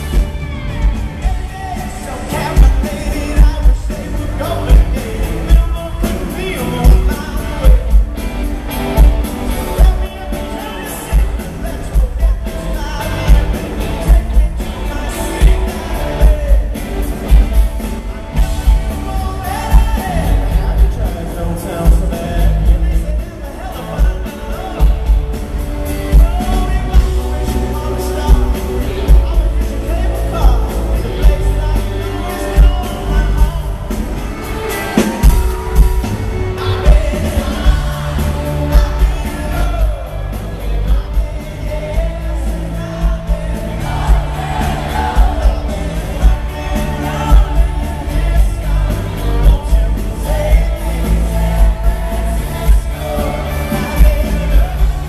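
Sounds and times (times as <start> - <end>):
live pop-rock band: 0.0 - 55.0
man singing lead vocals: 0.0 - 55.0.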